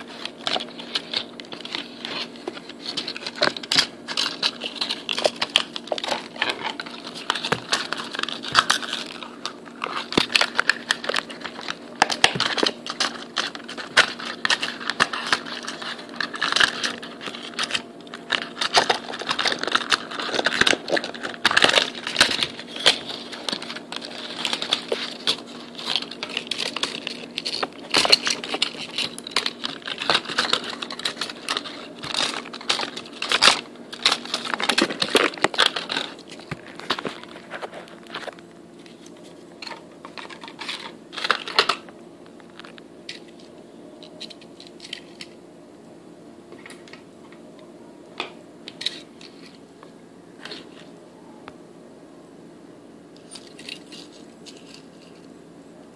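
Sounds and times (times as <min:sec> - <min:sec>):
cardboard box rustling and crinkling: 0:00.0 - 0:41.6
faint steady hum: 0:00.0 - 0:55.9.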